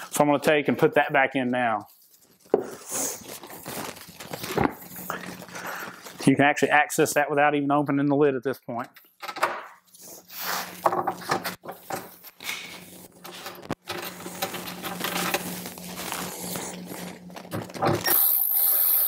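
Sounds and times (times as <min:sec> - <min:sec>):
cordless screwdriver running: 0:18.0 - 0:19.0.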